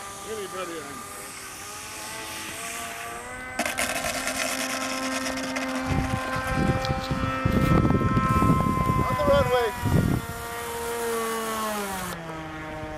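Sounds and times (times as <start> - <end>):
model airplane motor humming: 0.0 - 12.9
wind rumble on microphone: 5.5 - 10.8.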